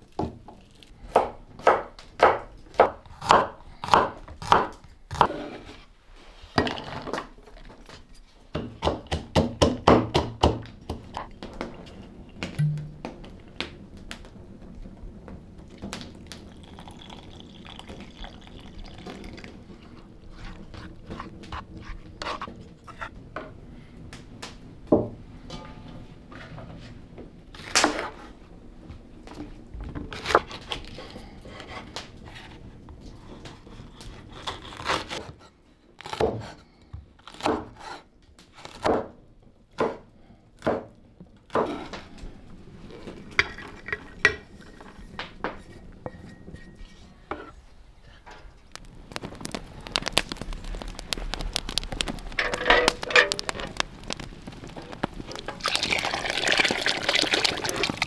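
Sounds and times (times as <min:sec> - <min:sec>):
liquid dripping and pouring: 0:15.6 - 0:21.4, 0:48.8 - 0:58.0.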